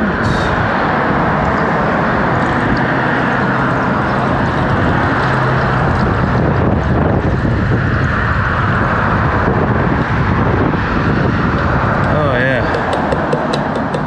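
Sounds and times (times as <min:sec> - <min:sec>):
low engine-like hum: 0:00.0 - 0:14.0
liquid pouring through a funnel: 0:00.2 - 0:07.4.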